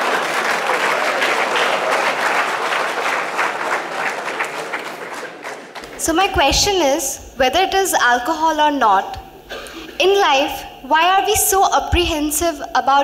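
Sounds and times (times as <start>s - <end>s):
audience applauding: 0.0s - 6.0s.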